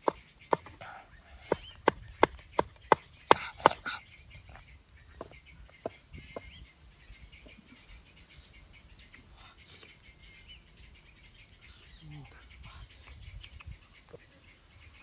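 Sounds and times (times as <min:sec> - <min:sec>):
cleaver chopping on wooden block: 0:00.0 - 0:00.8, 0:01.5 - 0:03.9.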